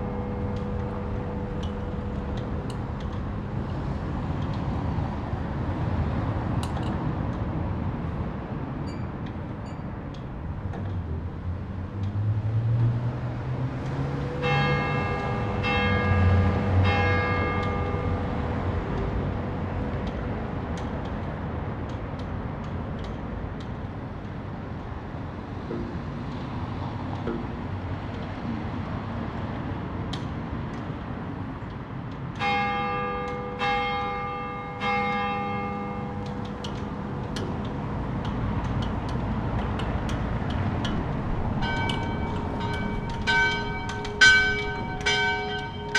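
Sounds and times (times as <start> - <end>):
church bell ringing: 0.0 - 3.5, 14.4 - 18.5, 32.4 - 37.0, 41.6 - 45.9.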